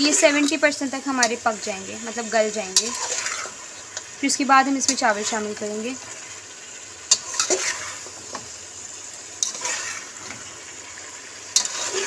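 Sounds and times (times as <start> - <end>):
potatoes frying sizzle: 0.0 - 12.0
spatula scraping metal pot: 2.2 - 4.1, 7.1 - 8.4, 9.4 - 10.5, 11.5 - 12.0.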